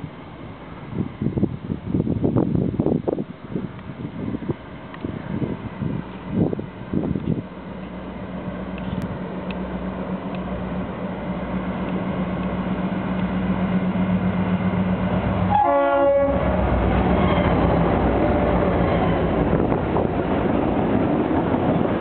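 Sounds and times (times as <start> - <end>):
diesel locomotive engine drone: 0.0 - 22.0
train horn blast: 15.4 - 17.6.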